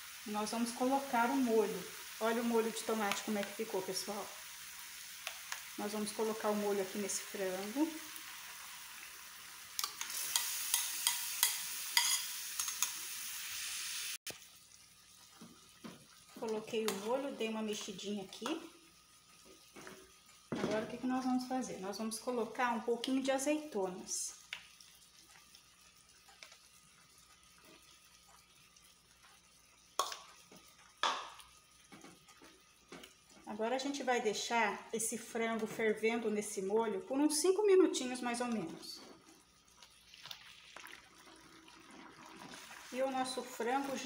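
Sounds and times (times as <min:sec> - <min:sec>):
chicken sizzling in a pan: 0:00.0 - 0:34.9, 0:35.5 - 0:44.0
kitchenware clinking on pan: 0:10.0 - 0:12.9
spoon scraping glass bowl: 0:10.3 - 0:12.8
sauce pouring: 0:24.3 - 0:33.4, 0:39.2 - 0:44.0.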